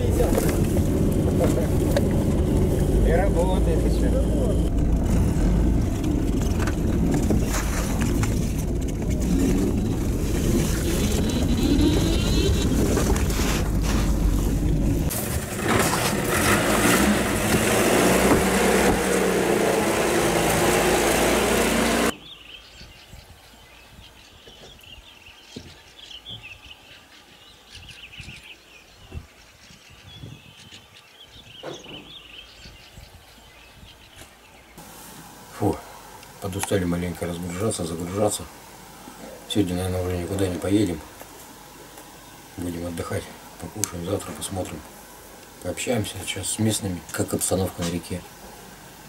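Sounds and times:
loud dense rumbling: 0.0s - 22.1s.

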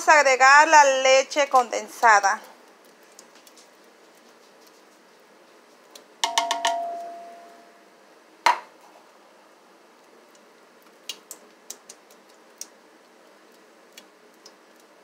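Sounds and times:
metal knocking on cooking pot: 6.2s - 7.2s.

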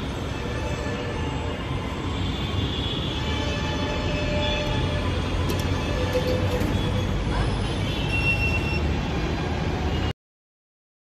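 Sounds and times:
metro train rumbling: 3.4s - 7.7s.

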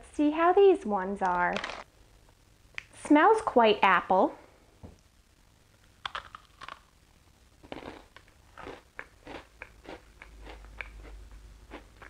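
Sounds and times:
person biting into a cookie: 6.0s - 6.8s, 7.6s - 12.0s
chewing crunches: 6.0s - 6.9s, 7.6s - 12.0s.

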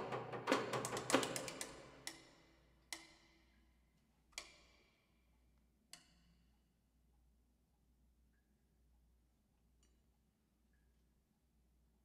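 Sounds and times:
chamber ensemble percussive strikes: 0.0s - 2.2s.

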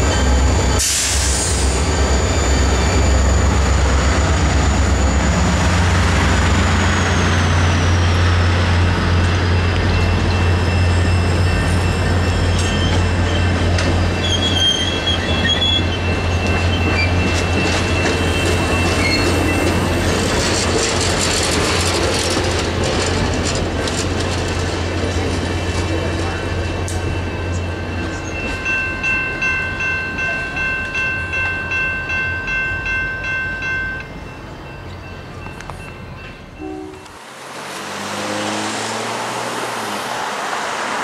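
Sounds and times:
high wheel squeal: 0.0s - 8.3s, 9.3s - 20.4s
train cars rumbling: 0.0s - 41.0s.

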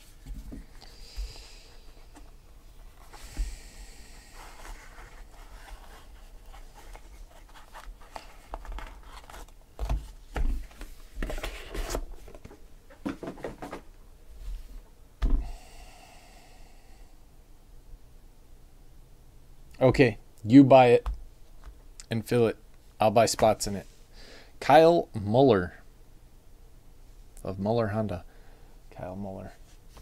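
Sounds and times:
cardboard and plastic rubbing: 4.4s - 13.8s.

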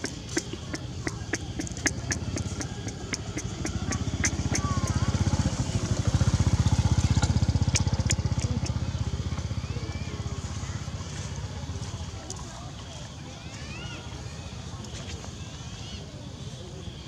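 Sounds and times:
sharp irregular clicks: 0.0s - 6.0s, 7.0s - 8.9s
small engine running: 0.0s - 12.9s.

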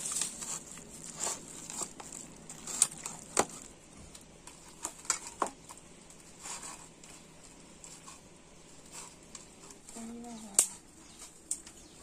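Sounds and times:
person humming: 10.0s - 10.6s.

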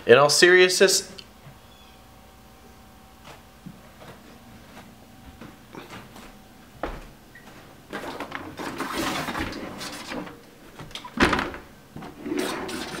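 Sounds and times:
rustling and handling noise: 3.1s - 11.2s.

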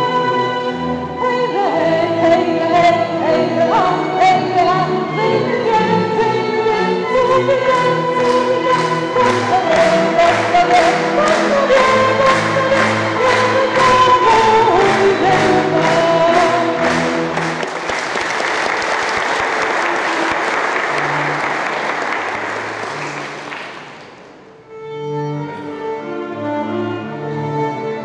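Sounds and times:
folk ensemble singing and playing: 0.0s - 17.5s
bowed strings: 0.0s - 17.6s
audience applause: 7.8s - 24.5s.

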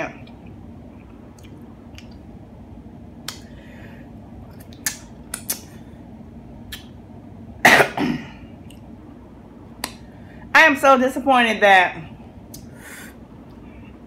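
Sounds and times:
mouth clicks and lip smacks: 1.2s - 2.3s, 3.2s - 3.5s, 4.4s - 5.8s, 6.6s - 7.0s, 9.8s - 10.0s, 12.5s - 12.7s.

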